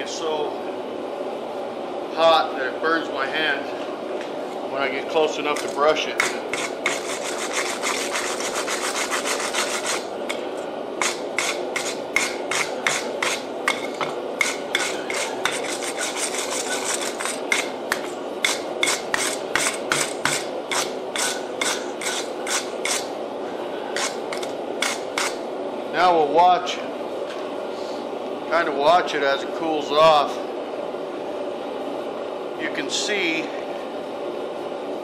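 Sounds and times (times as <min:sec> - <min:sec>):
wire brush scrubbing hot steel: 0:05.5 - 0:23.1, 0:24.0 - 0:25.4.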